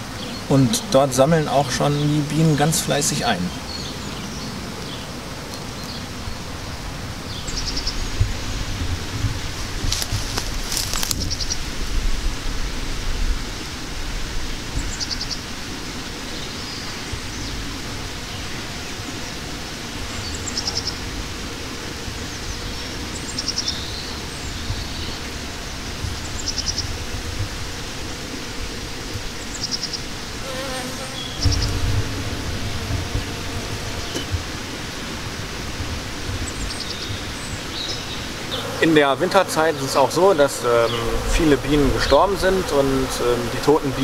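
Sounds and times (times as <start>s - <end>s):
bees buzzing faintly: 0.0s - 44.0s
steady outdoor hiss: 0.0s - 44.0s
low rumbles: 31.2s - 44.0s.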